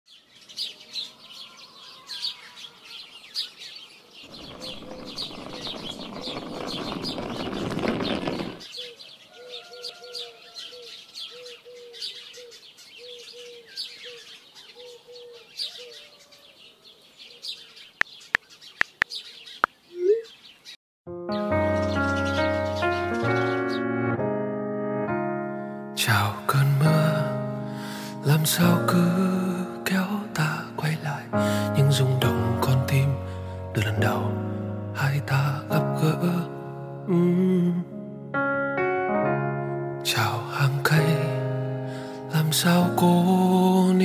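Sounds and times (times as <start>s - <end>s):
birds chirping: 0.1s - 24.0s
rushing noise: 4.3s - 8.7s
bird repeating a low note: 19.6s - 20.4s.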